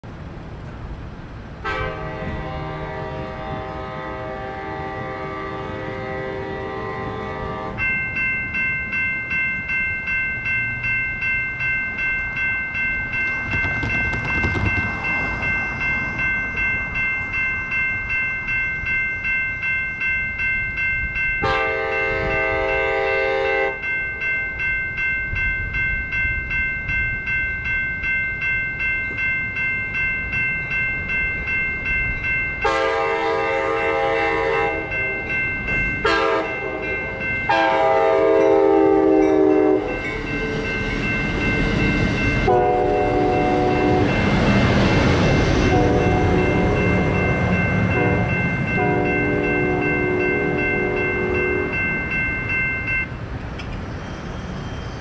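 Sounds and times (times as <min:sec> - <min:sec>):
crossing warning bell dinging: 0:00.1 - 0:55.0
train air horn: 0:01.6 - 0:07.8, 0:21.4 - 0:23.8, 0:32.6 - 0:34.9, 0:36.0 - 0:36.9, 0:37.5 - 0:40.0, 0:42.5 - 0:44.1, 0:45.6 - 0:46.4, 0:48.0 - 0:51.7.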